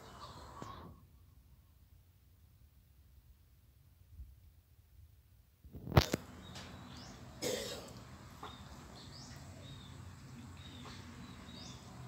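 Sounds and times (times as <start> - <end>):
small birds chirping: 0.0 - 1.9, 5.8 - 12.0.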